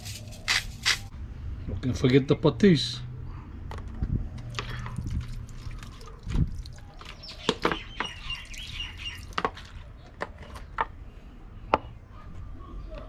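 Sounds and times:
bird chirping: 0:06.8 - 0:10.8.

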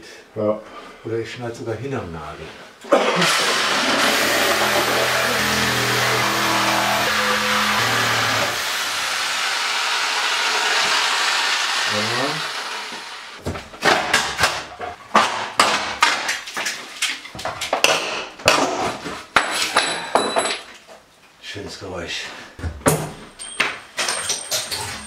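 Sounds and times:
power tool cutting nails: 0:03.1 - 0:13.4.

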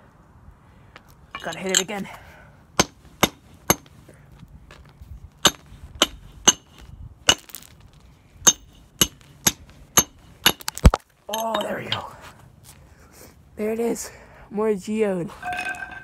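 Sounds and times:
hatchet striking rock: 0:02.8 - 0:03.9, 0:05.4 - 0:07.7, 0:08.5 - 0:11.7.

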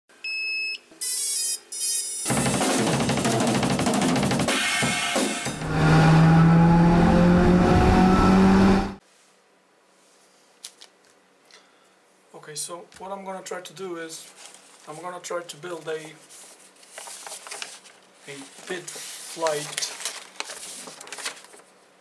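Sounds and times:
drum kit with cymbals: 0:02.3 - 0:05.7
held low note: 0:05.6 - 0:09.0.

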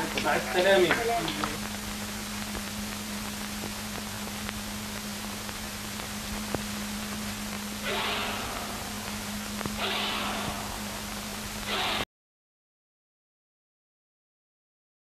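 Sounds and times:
faint clicks and crackles: 0:00.0 - 0:09.8
film soundtrack hiss: 0:00.0 - 0:12.0
low mains hum: 0:00.0 - 0:12.0
rush of noise: 0:01.6 - 0:12.0.

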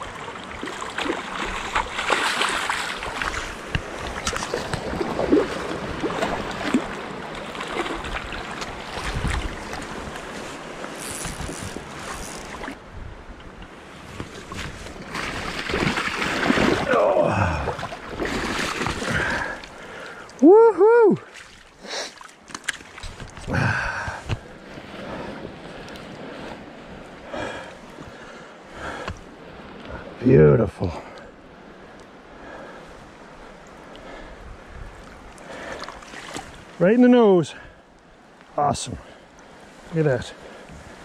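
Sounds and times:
water splashing from wading: 0:00.0 - 0:12.8, 0:14.2 - 0:20.4, 0:21.2 - 0:23.5, 0:35.0 - 0:36.7.

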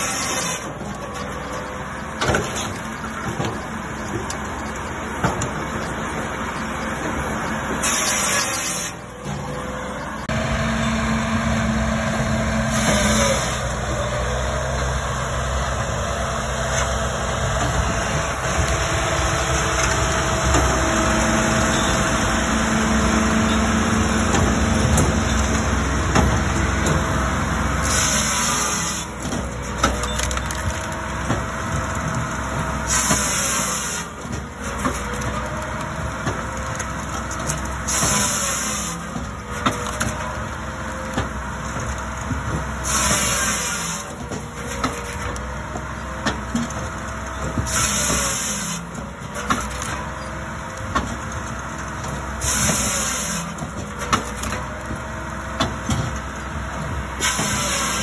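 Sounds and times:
circular saw cutting log: 0:00.0 - 0:00.8, 0:07.7 - 0:30.0, 0:32.8 - 0:35.6, 0:37.4 - 0:40.2, 0:42.8 - 0:45.5, 0:47.6 - 0:50.0, 0:52.3 - 0:54.6, 0:57.2 - 0:58.0
engine and hydraulics droning: 0:00.0 - 0:58.0.

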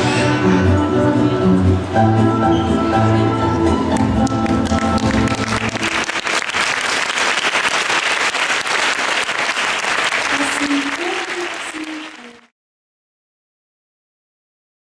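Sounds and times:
audience applauding: 0:03.9 - 0:12.5.

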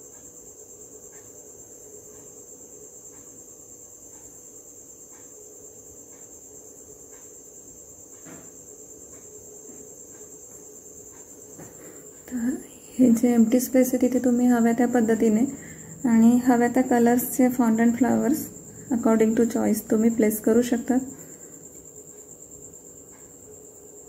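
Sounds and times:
soft faint ticks: 0:00.0 - 0:08.2, 0:09.0 - 0:12.4, 0:19.2 - 0:23.4.

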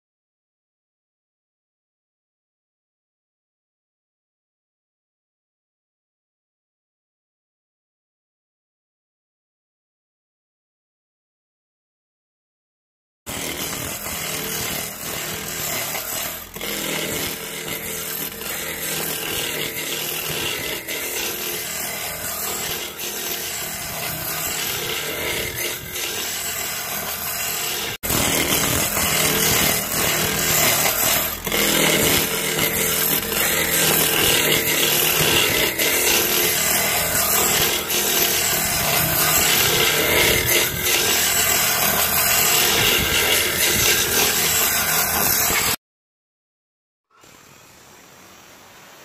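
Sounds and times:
chisel scraping spinning wood: 0:13.3 - 0:45.8.

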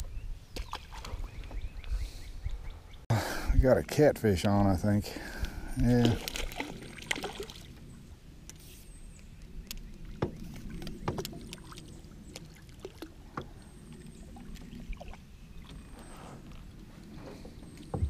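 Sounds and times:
water sloshing against hull: 0:05.4 - 0:18.0.

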